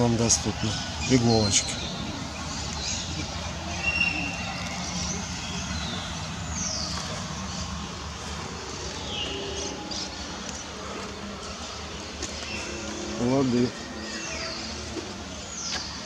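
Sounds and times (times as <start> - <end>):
low outdoor rumble: 0.0 - 16.0
high bird chirps: 0.8 - 7.6.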